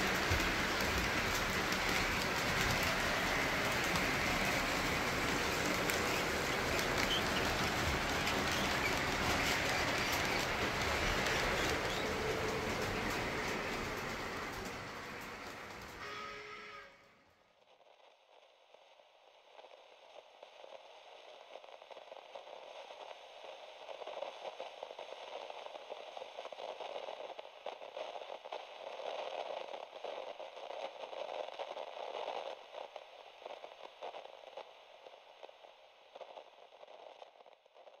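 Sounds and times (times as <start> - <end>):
model trains rattling on track: 0.0 - 16.9.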